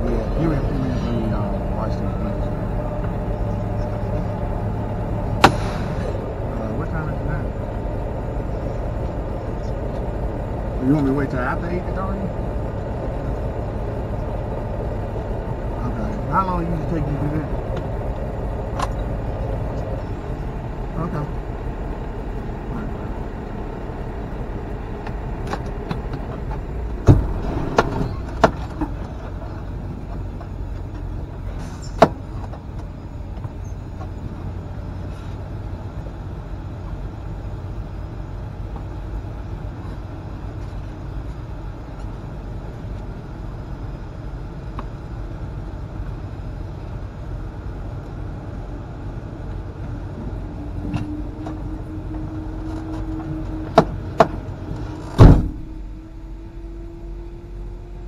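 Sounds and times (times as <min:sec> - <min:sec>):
truck engine rumbling: 0:00.0 - 0:58.0.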